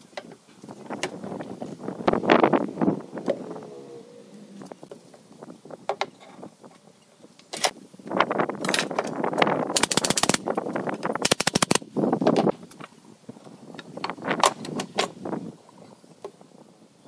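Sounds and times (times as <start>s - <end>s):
nail gun firing: 9.7s - 10.4s, 11.2s - 11.8s.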